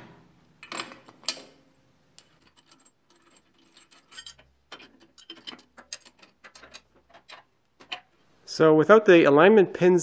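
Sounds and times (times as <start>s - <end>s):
bolt clinking on metal frame: 0.6s - 1.6s, 2.2s - 8.1s.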